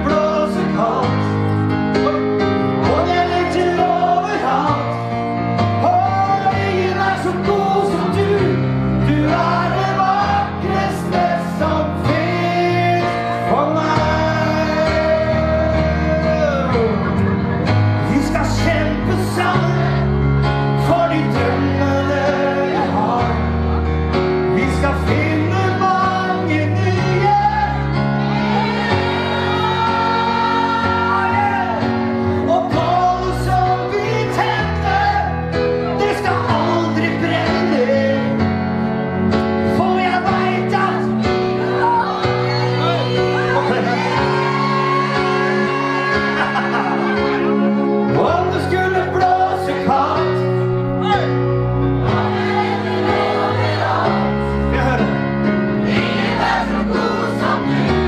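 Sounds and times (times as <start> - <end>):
man singing pop ballad: 0.0 - 17.2, 18.0 - 23.6, 24.5 - 27.9, 29.9 - 38.7, 39.6 - 41.5, 45.1 - 51.4
keyboard accompaniment: 0.0 - 58.0.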